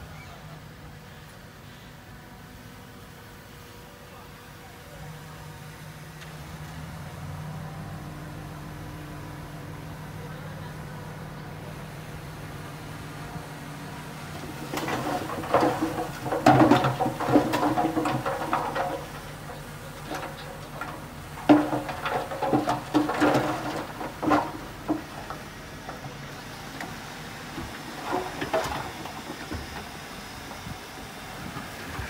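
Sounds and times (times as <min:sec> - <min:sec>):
truck engine humming: 0:07.4 - 0:32.0
soil and rocks clattering out: 0:14.1 - 0:30.1.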